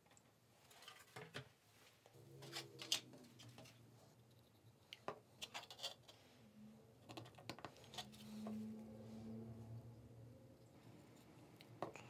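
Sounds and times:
plastic parts clicking and scraping: 0:02.4 - 0:06.2, 0:07.0 - 0:08.6.

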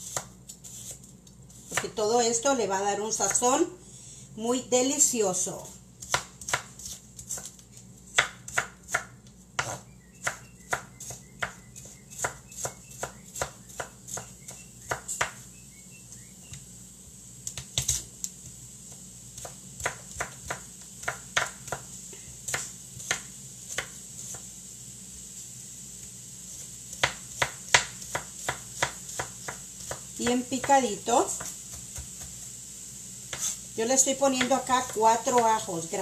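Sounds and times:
knife chopping on wooden board: 0:06.0 - 0:07.5, 0:08.1 - 0:15.4, 0:19.4 - 0:21.9, 0:22.5 - 0:24.4, 0:26.9 - 0:30.8, 0:31.4 - 0:32.4, 0:33.3 - 0:33.6.

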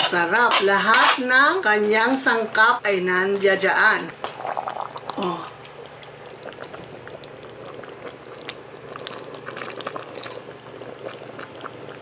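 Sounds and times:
stew bubbling in a pan: 0:03.3 - 0:12.0.

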